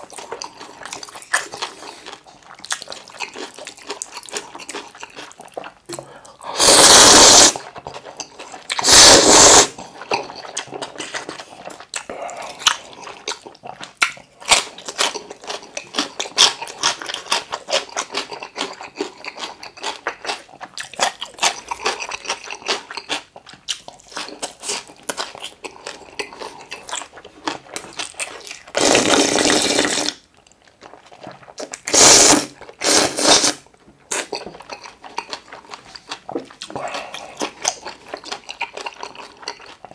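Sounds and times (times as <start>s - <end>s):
close-up wet chewing: 0.0s - 39.9s
loud noodle slurps: 6.5s - 7.7s, 8.7s - 9.9s, 28.8s - 30.2s, 31.6s - 33.6s.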